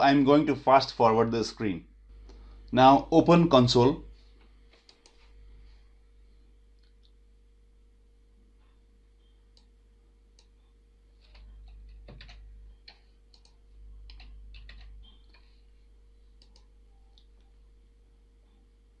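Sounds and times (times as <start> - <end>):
low electrical hum: 0.0 - 19.0
keyboard and mouse clicking: 11.2 - 15.5, 16.4 - 17.5.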